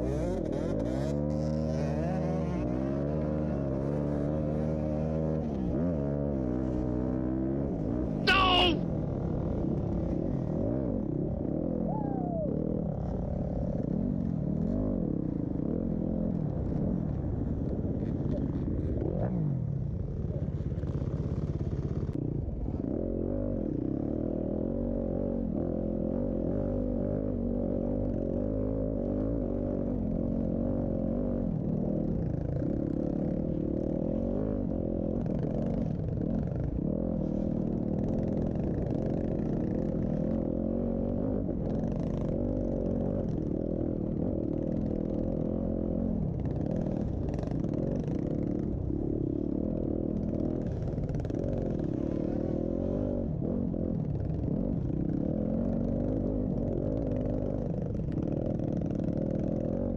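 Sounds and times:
dirt bike engines revving: 7.7s - 8.8s.

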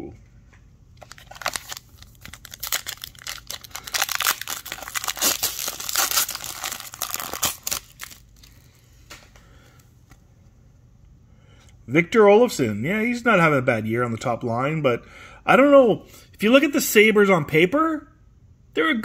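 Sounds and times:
plastic wrapper tearing and crinkling: 1.0s - 8.7s.

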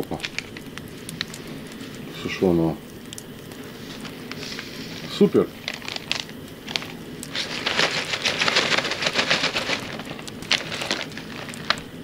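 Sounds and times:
plastic bags rustling: 0.0s - 2.0s, 3.6s - 12.0s.

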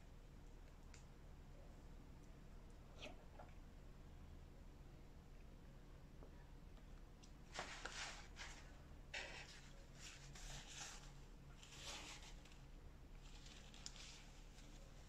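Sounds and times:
paper napkin rustling: 7.5s - 12.6s.

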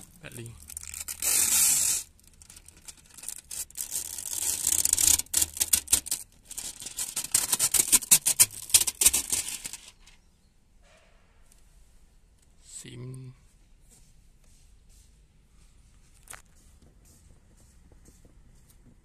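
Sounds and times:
window film ripping: 0.6s - 10.1s.

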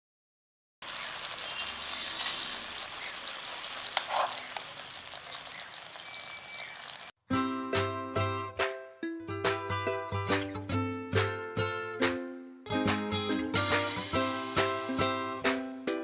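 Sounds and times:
sauce sizzling and bubbling in a pan: 0.8s - 7.1s, 13.6s - 15.1s
ukulele music: 7.3s - 16.0s.

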